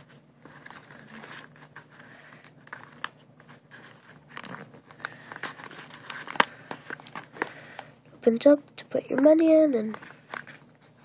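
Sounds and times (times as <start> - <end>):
paper crinkling: 0.0 - 7.9.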